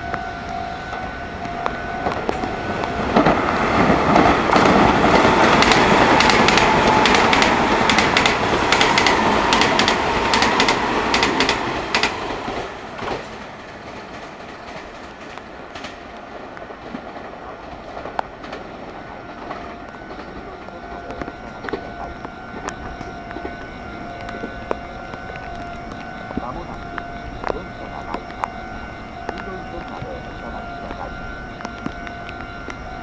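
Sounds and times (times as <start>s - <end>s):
train wheels clacking over rail joints: 2.0s - 28.5s.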